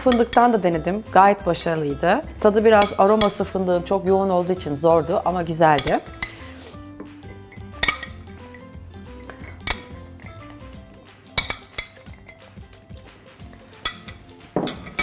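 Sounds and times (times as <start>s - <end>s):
metal spoon clinking against glass: 0.0s - 0.9s, 2.7s - 3.4s, 5.0s - 6.6s, 7.2s - 12.6s, 13.4s - 15.0s
soft background music: 0.0s - 15.0s.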